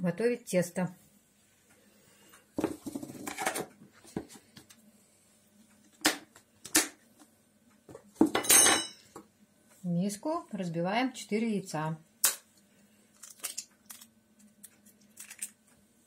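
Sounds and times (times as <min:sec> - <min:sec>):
dishes clattering: 0:08.2 - 0:09.1.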